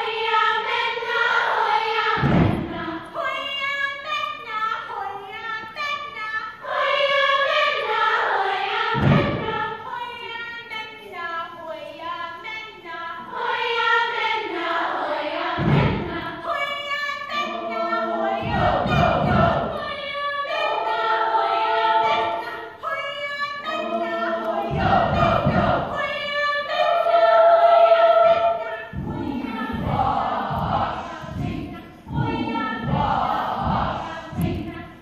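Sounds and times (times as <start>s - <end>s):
choir singing: 0.0s - 35.0s
low thumps: 2.0s - 3.2s, 8.8s - 9.9s, 15.4s - 16.6s, 17.4s - 20.1s, 23.8s - 27.2s, 28.2s - 35.0s.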